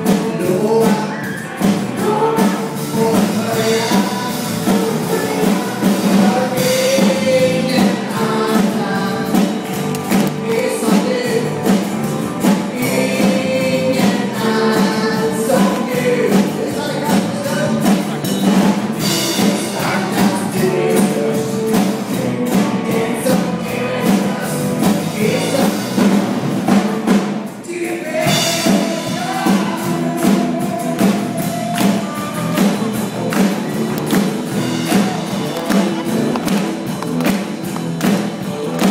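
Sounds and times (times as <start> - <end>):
acoustic guitar: 0.0 - 38.9
drums: 0.0 - 38.9
electric bass: 0.0 - 38.9
woman singing: 2.0 - 9.5.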